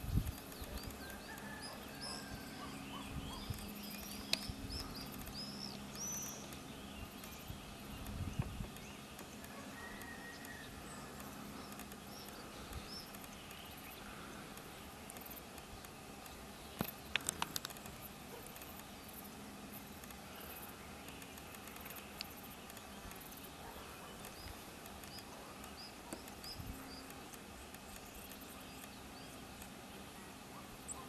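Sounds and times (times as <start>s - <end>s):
small birds chirping: 0.0s - 31.0s.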